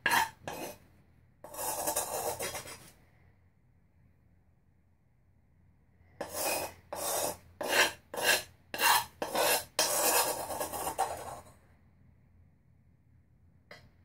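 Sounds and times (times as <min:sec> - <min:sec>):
spoon scraping powder in bowl: 0:00.0 - 0:00.8, 0:01.4 - 0:03.0, 0:06.2 - 0:11.5.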